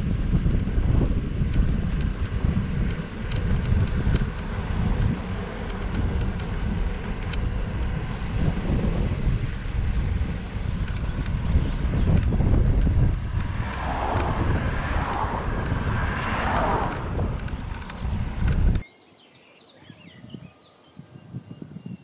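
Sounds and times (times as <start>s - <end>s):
wind buffeting microphone: 0.0s - 18.9s, 19.8s - 22.0s
faint ticks: 1.5s - 8.4s, 10.3s - 18.8s.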